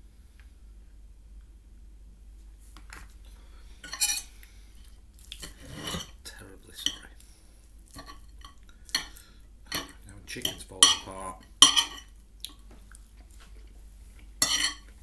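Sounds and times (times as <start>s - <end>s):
cutlery clinking on a plate: 3.8s - 4.3s, 8.0s - 12.1s, 14.4s - 15.0s.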